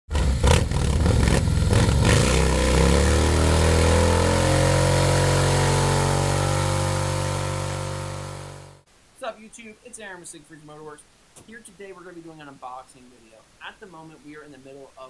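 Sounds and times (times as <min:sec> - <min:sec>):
motorcycle engine revving and idling: 0:00.1 - 0:08.8.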